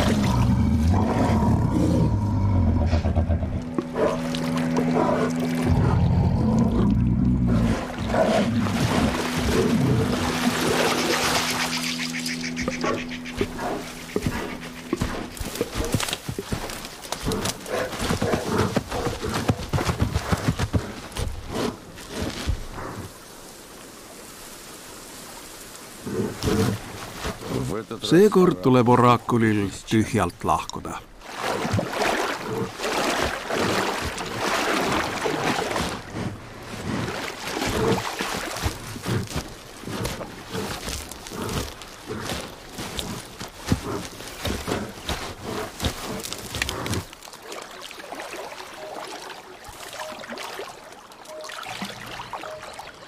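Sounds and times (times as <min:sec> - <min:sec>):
water splashing and sloshing: 0:00.0 - 0:53.0
bear breathing: 0:00.3 - 0:10.9, 0:12.7 - 0:23.2, 0:35.6 - 0:47.3
heavy steps through brush: 0:08.5 - 0:23.0, 0:32.9 - 0:47.4.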